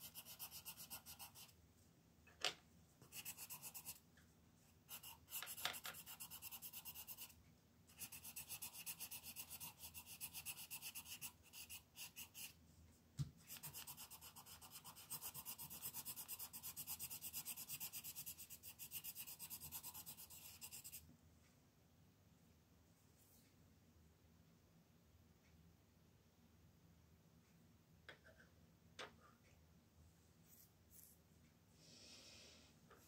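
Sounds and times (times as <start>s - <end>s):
pencil scratching on paper: 0.0s - 1.6s, 3.0s - 4.0s, 4.8s - 12.6s, 13.5s - 21.0s.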